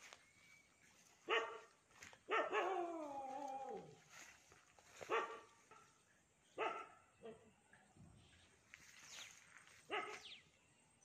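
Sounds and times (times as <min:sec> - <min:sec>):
dog barking: 0:01.2 - 0:03.1, 0:05.0 - 0:05.9, 0:06.6 - 0:07.4, 0:09.9 - 0:10.3.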